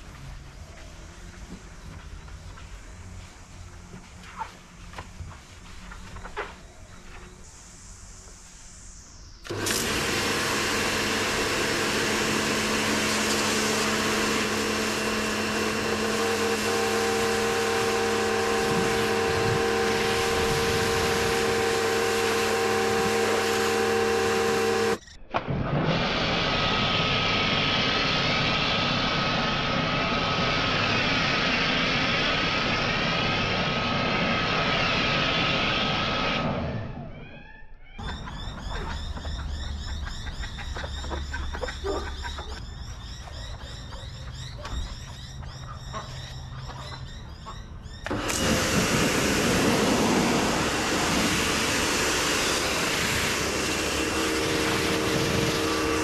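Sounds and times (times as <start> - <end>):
thin whine: 0.0 - 38.8, 48.0 - 56.0
water spray hissing: 7.3 - 25.0, 48.1 - 56.0
pressure washer motor humming: 9.4 - 25.0, 25.7 - 37.1, 48.0 - 56.0.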